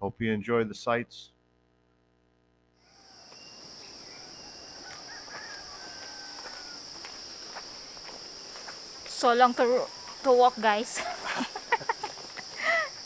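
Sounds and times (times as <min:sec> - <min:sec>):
bird chirps: 0:02.8 - 0:06.7
high-pitched insect drone: 0:02.8 - 0:13.0.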